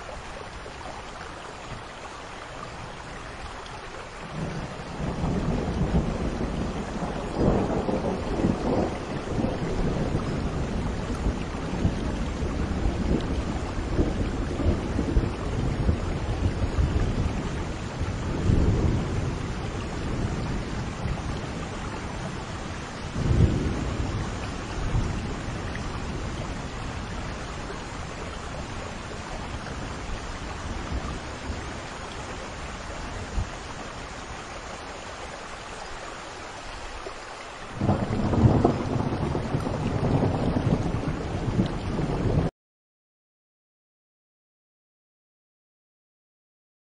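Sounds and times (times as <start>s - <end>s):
steady rain: 0.0s - 42.5s
rolling thunder: 4.3s - 33.9s, 37.8s - 42.5s.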